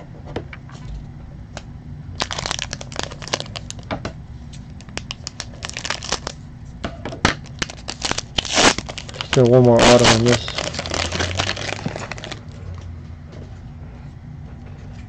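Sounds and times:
foil pack crinkling: 2.2s - 3.9s, 4.8s - 6.4s, 7.4s - 12.6s.

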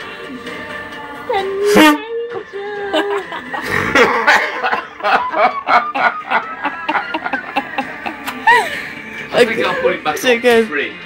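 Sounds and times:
people laughing: 2.9s - 9.0s.

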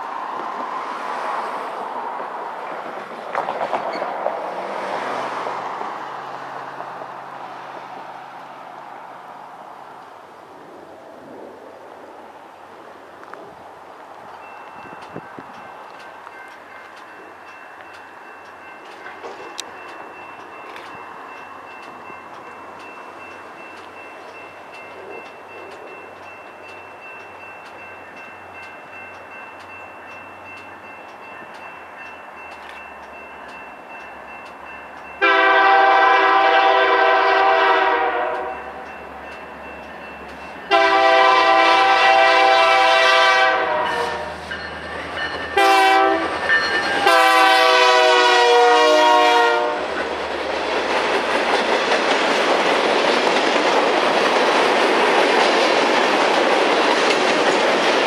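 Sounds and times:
train cars rolling on rails: 0.0s - 58.0s
locomotive horn blasts: 35.2s - 38.6s, 40.7s - 44.5s, 45.6s - 46.4s, 47.0s - 49.9s.

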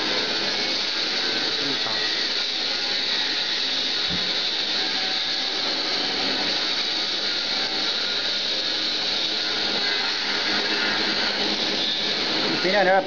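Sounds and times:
roasting machine whirring: 0.0s - 13.0s.

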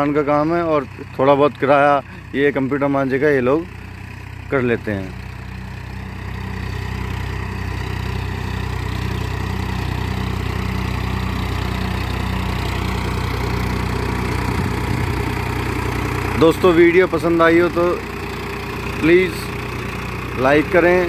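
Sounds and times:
tractor diesel engine running: 0.0s - 21.0s.

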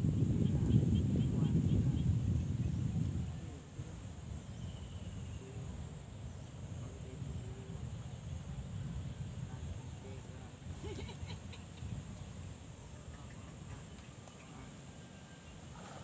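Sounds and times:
low rumble: 0.0s - 10.2s
insects droning: 0.0s - 16.0s.

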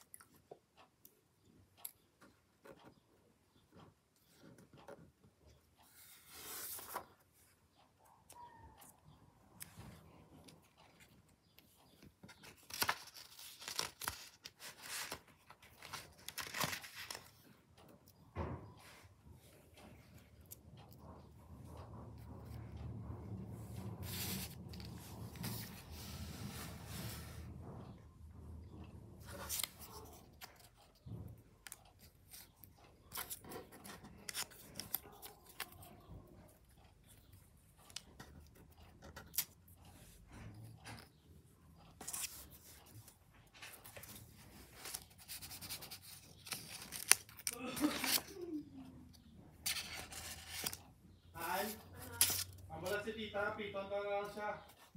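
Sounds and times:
paper rustling: 5.9s - 7.3s, 12.0s - 17.5s, 23.7s - 27.4s, 29.3s - 30.9s, 41.9s - 48.4s, 49.6s - 50.8s, 51.4s - 53.0s
paper crinkling and tearing: 12.4s - 17.3s, 44.7s - 48.4s, 49.7s - 50.9s, 51.6s - 52.6s.

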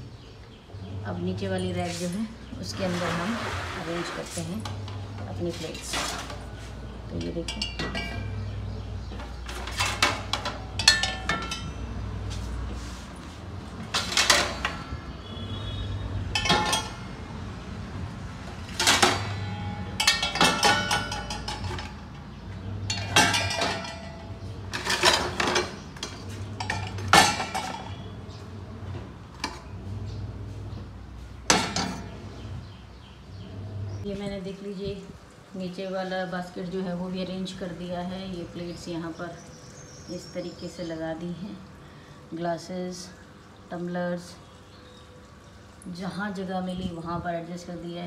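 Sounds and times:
plates and utensils clattering: 7.2s - 12.5s, 16.3s - 17.1s, 18.7s - 28.2s, 31.5s - 32.2s.

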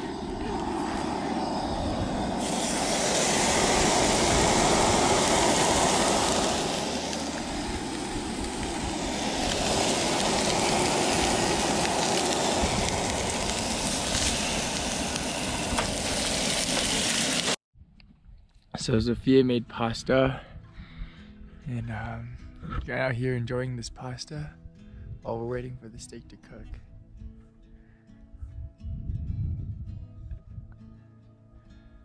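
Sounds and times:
steak sizzling in a pan: 2.4s - 17.6s.

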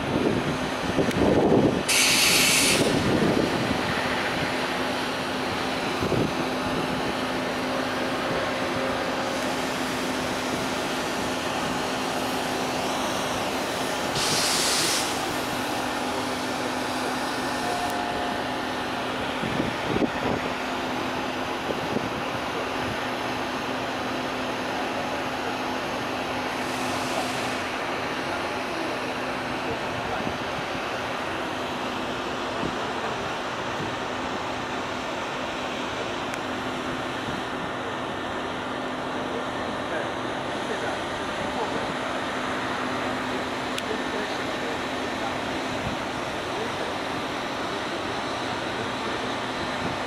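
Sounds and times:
short hiss: 1.9s - 3.0s, 14.1s - 15.3s.

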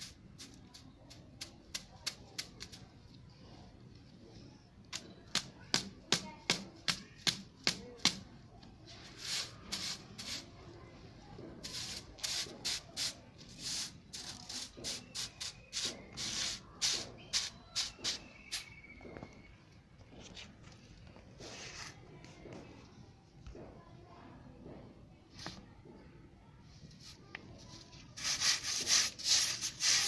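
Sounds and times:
broom sweeping concrete floor: 0.0s - 2.8s, 8.9s - 10.7s, 11.5s - 18.7s, 21.4s - 22.0s, 26.8s - 30.0s.

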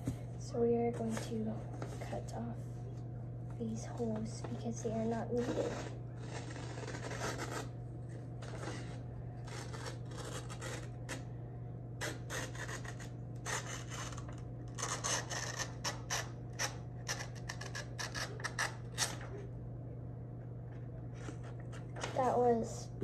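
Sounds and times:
steady low hum: 0.0s - 23.0s
scissors snipping paper: 8.4s - 11.2s, 12.0s - 19.2s.

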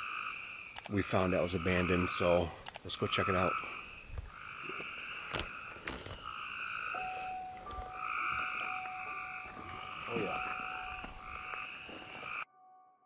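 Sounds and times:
frogs calling: 0.0s - 12.5s.

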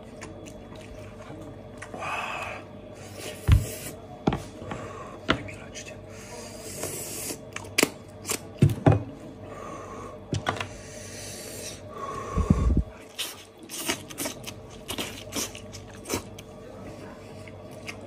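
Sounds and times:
meat tearing and squelching: 13.0s - 16.5s
biting and chewing: 13.0s - 16.6s, 17.4s - 18.0s.

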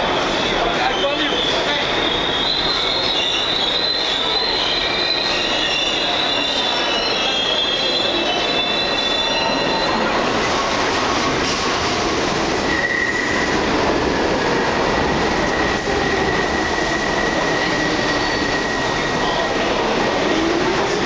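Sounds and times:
subway train rumble and rail noise: 0.0s - 21.0s
high steady squeal-like tone: 0.8s - 10.2s.

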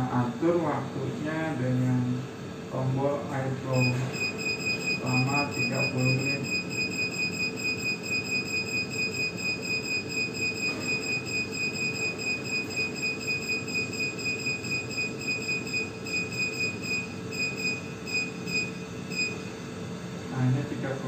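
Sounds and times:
pulsing high-pitched electronic whine: 3.7s - 19.4s.

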